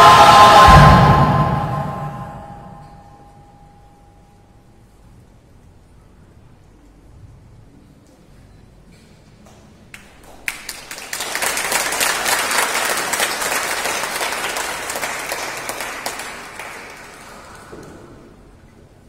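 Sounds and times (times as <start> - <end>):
audience applauding: 10.0 - 18.1.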